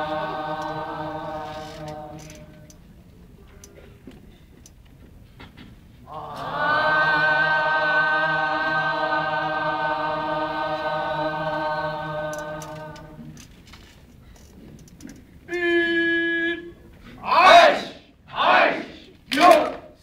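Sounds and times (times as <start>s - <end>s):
chorus chanting one long note: 0.0s - 2.7s, 6.1s - 13.3s.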